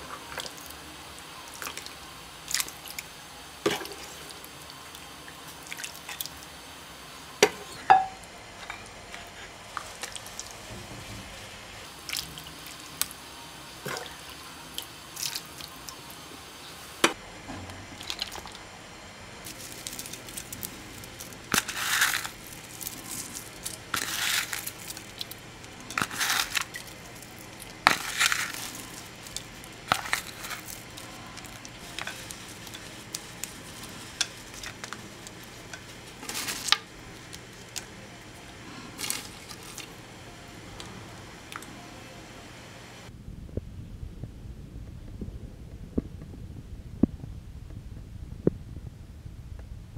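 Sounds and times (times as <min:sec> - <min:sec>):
soup dripping and splashing: 0:12.0 - 0:13.1
crunchy rustling bursts: 0:19.4 - 0:37.9.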